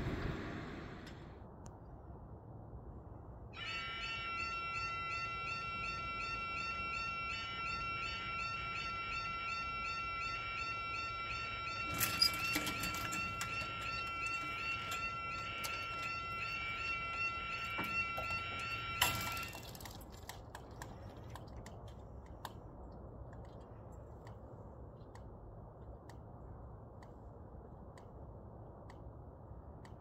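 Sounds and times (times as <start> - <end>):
level crossing alarms sounding: 3.6 - 20.2.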